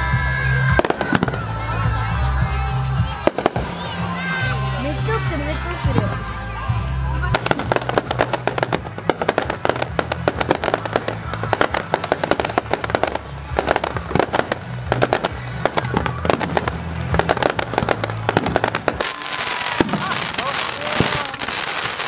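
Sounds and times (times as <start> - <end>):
fireworks bangs and crackles: 0.3 - 22.0
firework whistle: 17.3 - 22.0.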